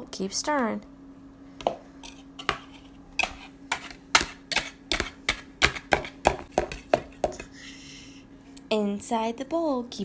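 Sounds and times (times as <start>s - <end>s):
whisk knocking plastic bowl: 2.4s - 7.4s.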